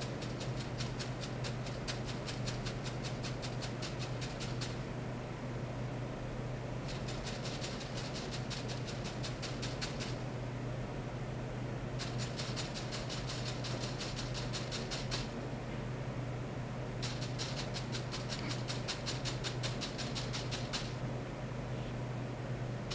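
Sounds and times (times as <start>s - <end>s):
steady low hum: 0.0s - 22.9s
rapid even ticking: 6.9s - 10.2s.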